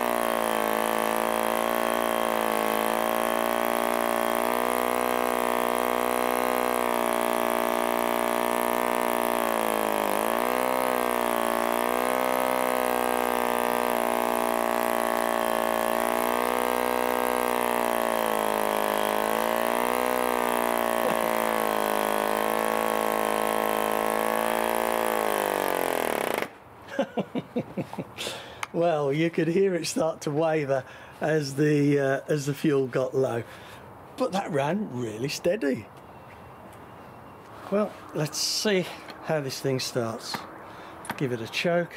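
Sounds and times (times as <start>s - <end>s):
model aero engine running: 0.0s - 26.5s.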